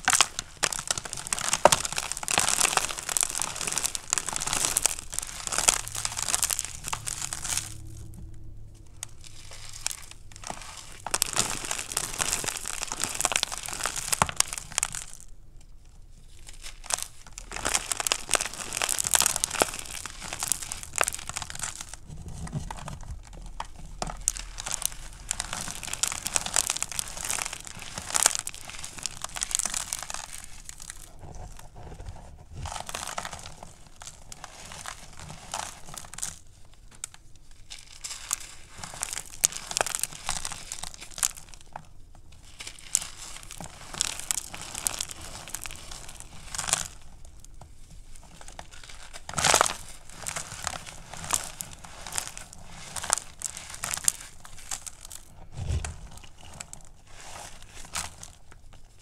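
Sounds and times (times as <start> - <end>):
chalk crunching in a hand: 0.0 - 8.0, 16.2 - 32.0, 47.8 - 58.9.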